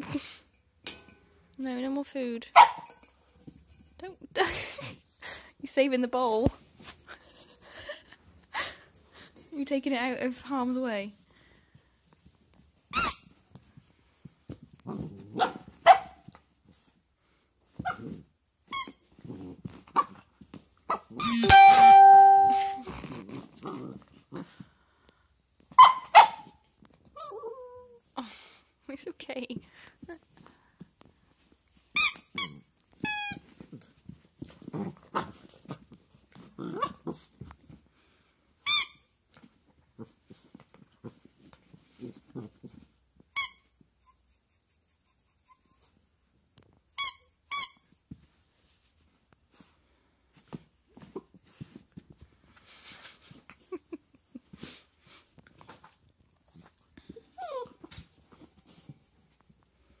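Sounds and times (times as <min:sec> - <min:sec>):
squeaky toy squeaking: 0:12.9 - 0:13.3, 0:18.7 - 0:19.0, 0:21.2 - 0:22.8, 0:32.0 - 0:33.4, 0:38.6 - 0:39.1, 0:43.4 - 0:43.7, 0:47.0 - 0:47.9
puppy growling: 0:23.0 - 0:24.6, 0:36.4 - 0:37.3
puppy whine: 0:27.2 - 0:28.0, 0:56.4 - 0:58.1
puppy whimpering: 0:57.3 - 0:57.9.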